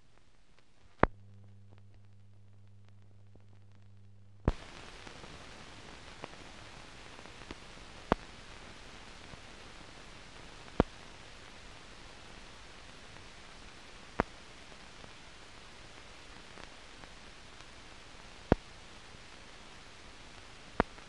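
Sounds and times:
film hiss: 0.0 - 21.0
low hum: 0.2 - 4.5.

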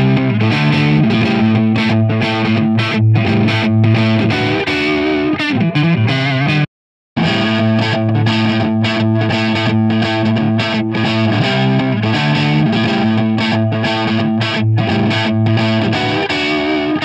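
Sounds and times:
distorted electric guitar chords: 0.0 - 17.0.

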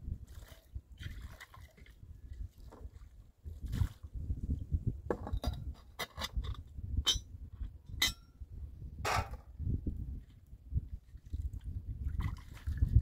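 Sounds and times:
dishes clinking in plastic basin: 9.1 - 9.5.

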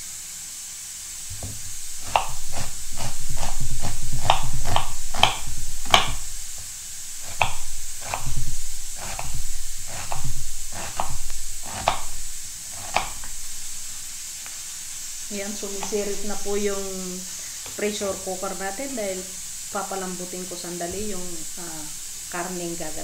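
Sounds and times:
pressure cooker hissing: 0.0 - 23.0
knife slicing onion on board: 1.3 - 6.6, 7.2 - 13.8
low rumble: 1.3 - 17.4.

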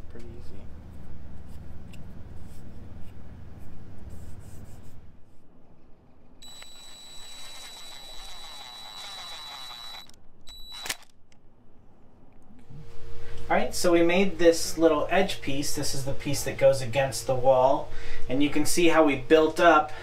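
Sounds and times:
cordless driver whining: 6.4 - 11.1
sharp click: 9.3 - 11.4.

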